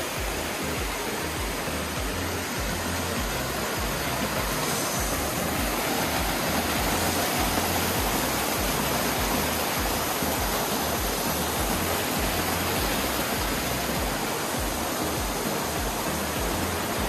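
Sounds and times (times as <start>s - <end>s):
waterfall rushing over rocks: 0.0s - 17.0s.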